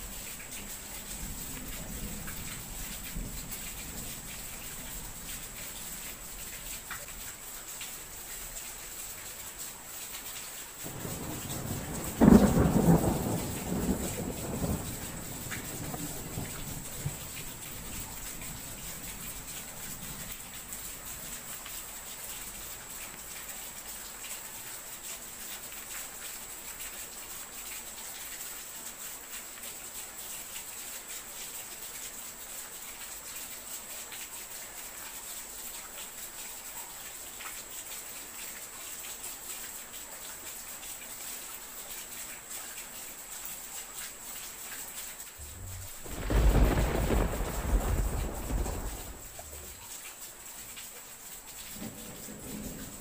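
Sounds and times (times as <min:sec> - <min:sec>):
rain hiss and pattering: 0:00.0 - 0:53.0
thunder rumble: 0:10.9 - 0:18.9, 0:45.4 - 0:49.8, 0:51.8 - 0:53.0.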